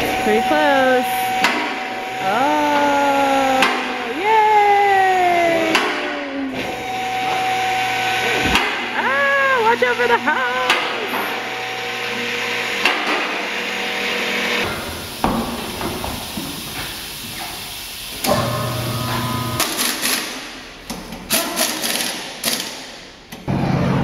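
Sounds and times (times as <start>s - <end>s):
machine motor running: 0.0s - 4.2s, 5.2s - 15.2s, 18.0s - 20.4s.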